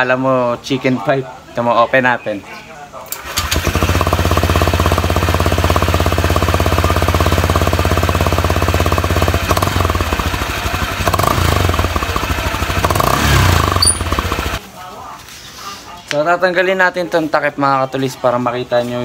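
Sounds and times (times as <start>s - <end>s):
scooter engine idling: 3.2s - 14.6s.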